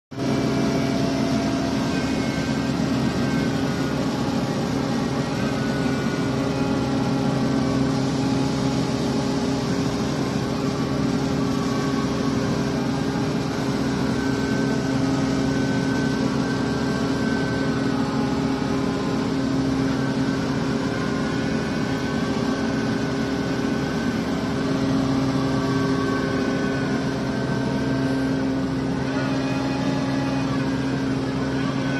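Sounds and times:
excavator engine and hydraulics: 0.2s - 31.9s.

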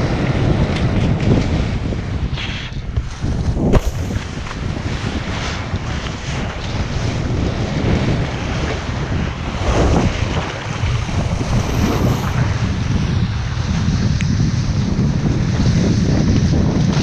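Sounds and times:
wind buffeting microphone: 0.0s - 17.0s
water rushing and splashing: 3.0s - 13.7s.

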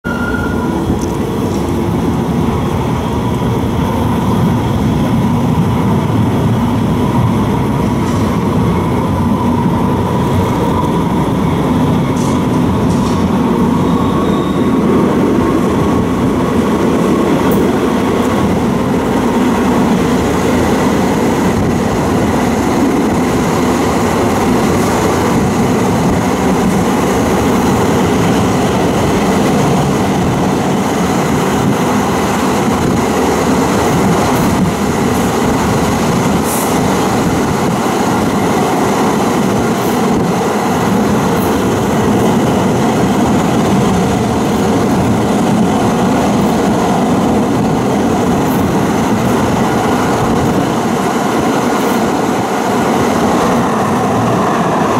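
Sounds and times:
steel wheels rumbling on rail: 0.0s - 54.9s.

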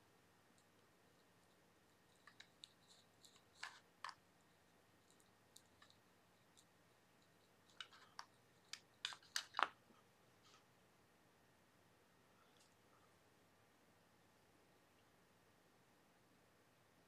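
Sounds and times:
hands handling plastic toy: 2.0s - 4.2s, 5.0s - 9.8s.

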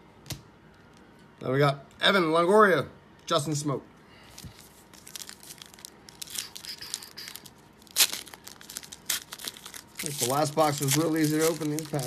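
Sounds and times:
foil wrapper crinkling: 4.4s - 12.0s
foil wrapper ripping: 4.7s - 12.0s.

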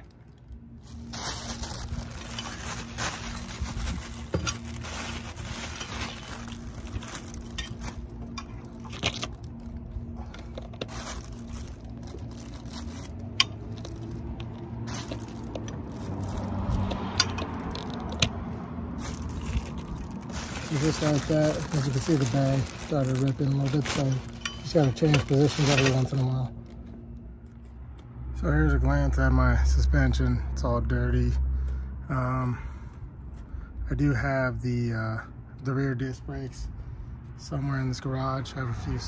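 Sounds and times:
plastic bag crinkling: 0.0s - 26.8s
plastic bag tearing: 0.8s - 18.3s, 19.0s - 26.8s.

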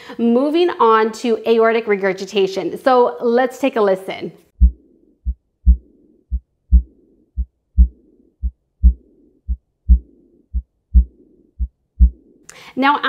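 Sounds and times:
heartbeat: 4.6s - 12.5s
soft blowing heart murmur: 4.6s - 12.5s.

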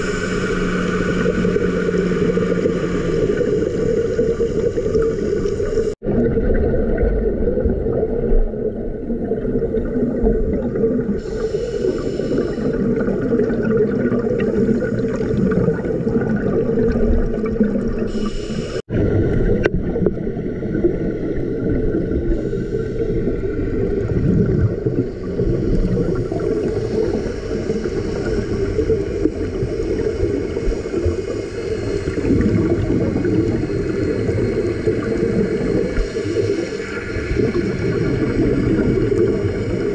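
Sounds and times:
scuba bubbling: 0.0s - 39.9s
underwater rumble and hum: 0.0s - 39.9s.

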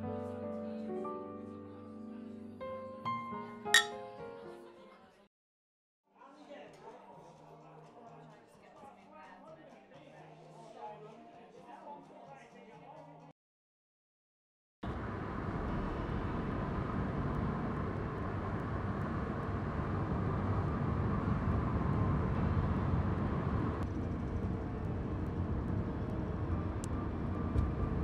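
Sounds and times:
car engine and tyre rumble: 14.9s - 28.0s.

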